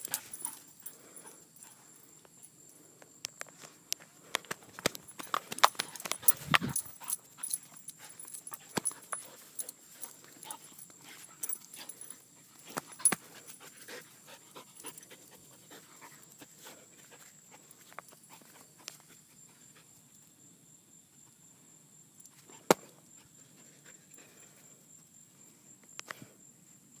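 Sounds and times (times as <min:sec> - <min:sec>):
dog panting: 0:05.6 - 0:20.0.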